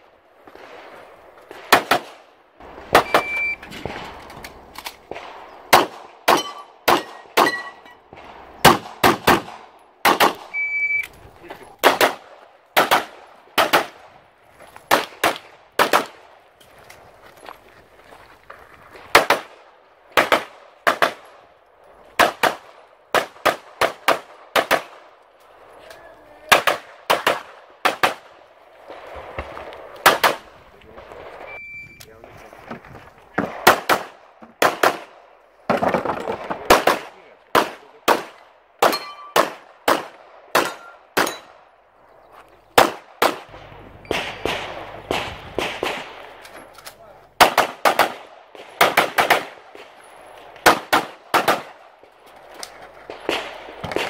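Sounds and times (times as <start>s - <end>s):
handgun shots: 5.7s - 7.9s, 37.6s - 41.5s.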